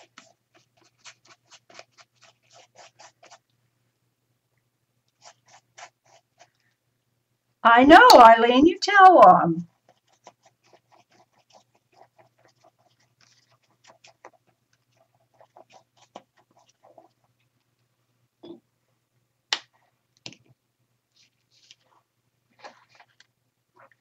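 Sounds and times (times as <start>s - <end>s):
paintbrush scratching on paper: 0.0s - 3.4s, 5.1s - 6.6s, 9.7s - 17.4s.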